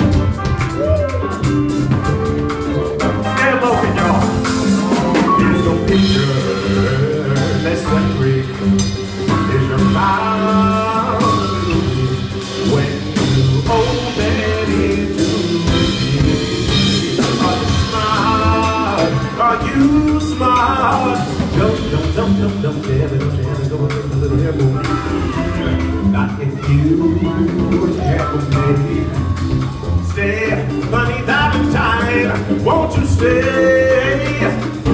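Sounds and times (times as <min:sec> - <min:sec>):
drum kit with cymbals: 0:00.0 - 0:34.9
upright bass walking: 0:00.0 - 0:34.9
electric guitar lead: 0:23.8 - 0:34.9.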